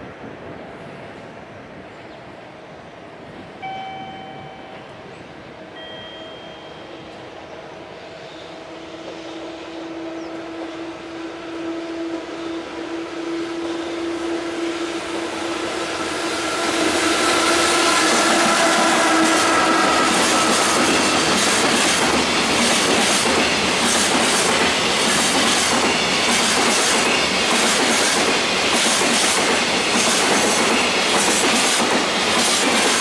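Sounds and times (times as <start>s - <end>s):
locomotive hum: 3.2s - 31.2s
train horn toot: 8.1s - 21.5s.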